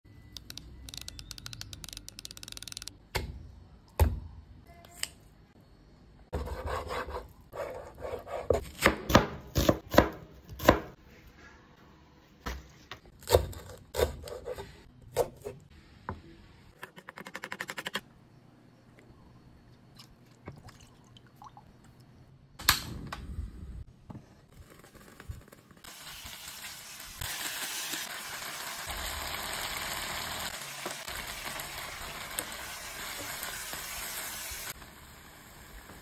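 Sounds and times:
knife chopping onion on wooden board: 6.4s - 10.9s.

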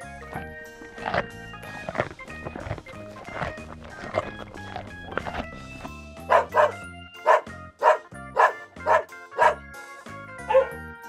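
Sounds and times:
background music: 0.0s - 11.0s
dog barking: 6.3s - 9.6s, 10.4s - 10.8s.

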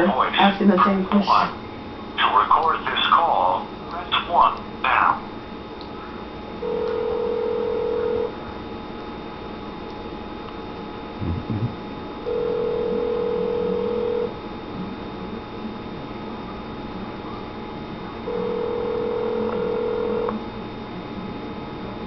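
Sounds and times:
telephone ringback tone: 6.6s - 8.3s, 12.3s - 14.3s, 18.3s - 20.3s.

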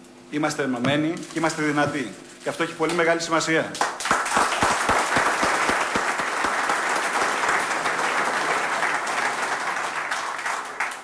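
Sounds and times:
audience applauding in a hall: 3.8s - 11.0s.

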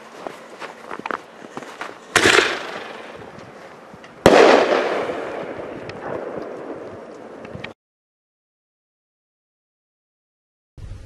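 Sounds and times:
firework shell bursting overhead: 2.1s - 3.2s, 4.2s - 6.8s
firework mortar launch bang: 4.2s - 6.4s.

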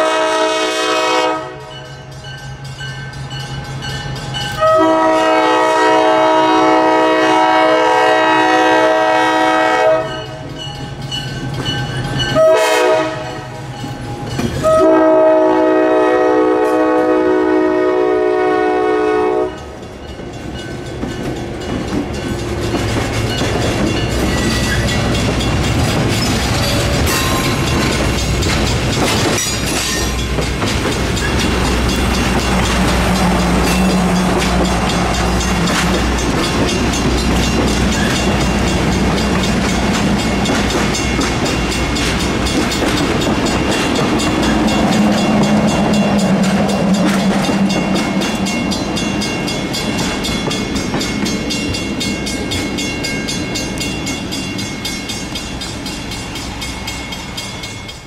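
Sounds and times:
locomotive air horn: 0.0s - 1.8s, 4.6s - 10.2s, 12.4s - 13.6s, 14.6s - 19.7s
train rumble and wheel clatter: 0.0s - 58.0s.

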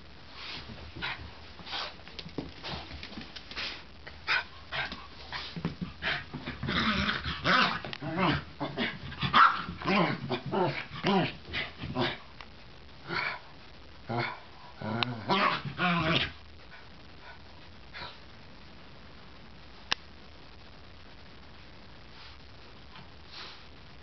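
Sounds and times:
small dog growling and barking: 6.0s - 12.2s, 14.1s - 16.4s.

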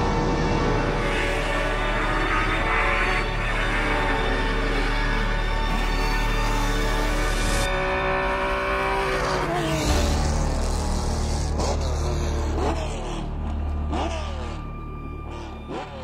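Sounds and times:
racing car engine at high revs: 0.9s - 16.0s
engine throttle blips: 9.9s - 16.0s.

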